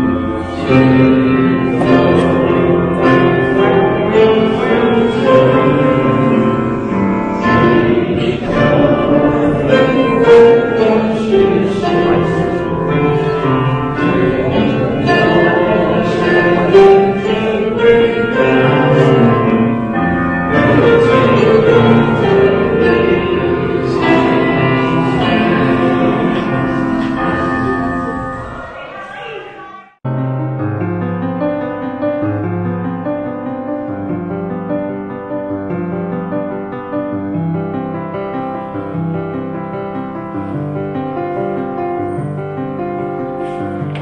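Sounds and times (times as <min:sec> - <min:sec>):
group of voices singing: 0:00.0 - 0:29.8
piano music: 0:00.0 - 0:44.0.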